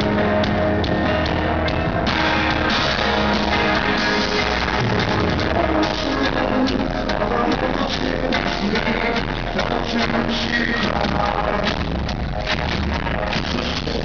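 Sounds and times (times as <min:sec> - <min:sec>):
drum hits: 0:00.0 - 0:07.8
electric guitar: 0:00.0 - 0:14.0
live rock band: 0:00.0 - 0:14.0.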